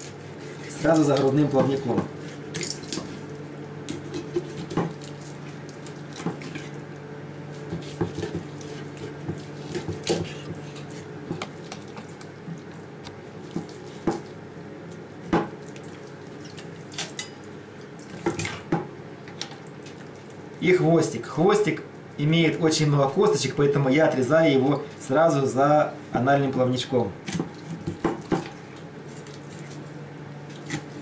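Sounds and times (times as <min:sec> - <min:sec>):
knife cutting through fish: 0:07.6 - 0:11.1, 0:30.5 - 0:31.0
knife knocking on cutting board: 0:15.3 - 0:15.5, 0:27.9 - 0:28.5.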